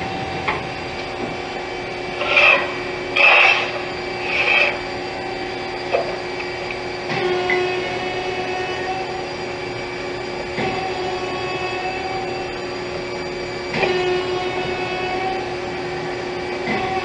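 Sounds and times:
lathe humming: 0:00.0 - 0:13.6
rasping scrapes: 0:02.2 - 0:04.8.

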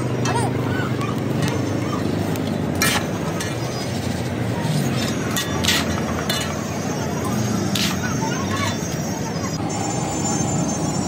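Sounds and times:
street noise: 0:00.0 - 0:11.0
metal scoop scraping a wok: 0:04.8 - 0:06.6.

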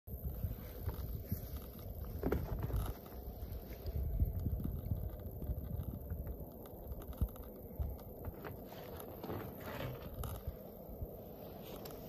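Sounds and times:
wind buffeting microphone: 0:00.1 - 0:08.7.

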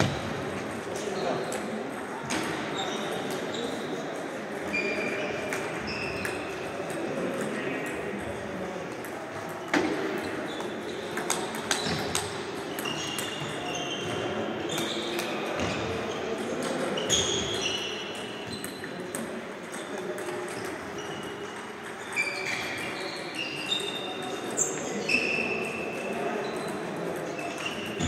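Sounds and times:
murmur of voices: 0:00.0 - 0:28.0
table tennis balls ticking: 0:05.5 - 0:15.4.

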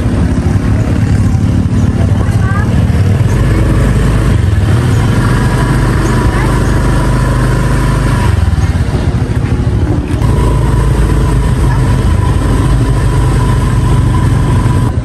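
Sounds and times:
motorbike engine running: 0:00.0 - 0:15.0.

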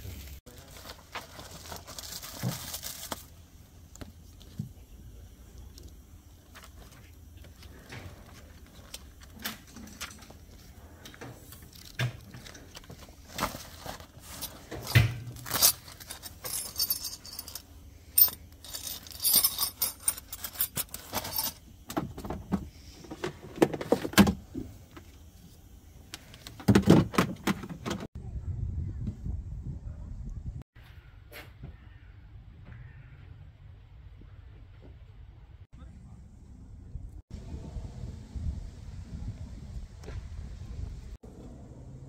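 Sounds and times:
small metal items clinking: 0:11.5 - 0:21.7.

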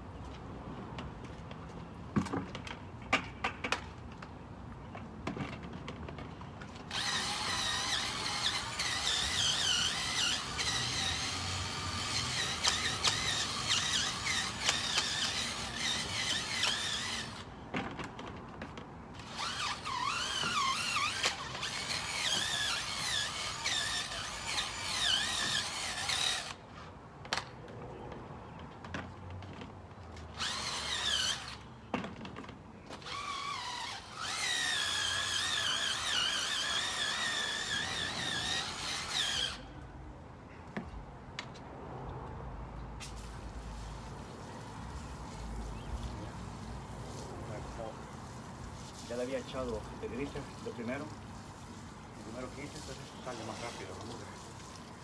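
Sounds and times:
brush scrubbing tyre with squeaking: 0:06.8 - 0:17.7, 0:19.2 - 0:27.0, 0:30.2 - 0:31.8, 0:32.9 - 0:39.7, 0:43.0 - 0:55.0.

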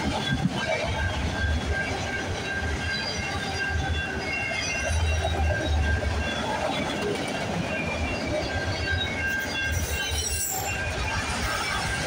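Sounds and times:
steel wheels rumbling on rail: 0:00.0 - 0:12.0
wheels squealing: 0:07.7 - 0:12.0.

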